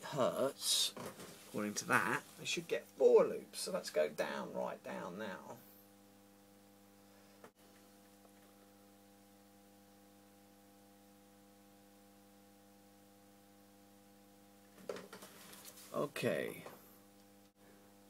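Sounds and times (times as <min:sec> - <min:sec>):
faint mains hum: 0:00.0 - 0:18.0.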